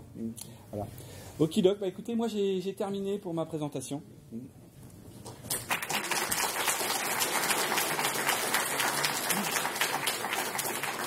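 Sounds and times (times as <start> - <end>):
audience clapping: 5.5 - 11.0.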